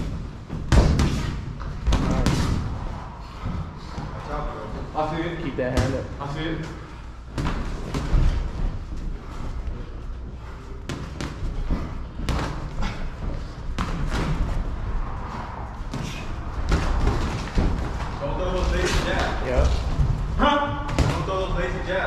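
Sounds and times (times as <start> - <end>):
boxing gloves thudding: 0.5 - 2.6
low rumble: 1.7 - 5.4, 14.4 - 20.4.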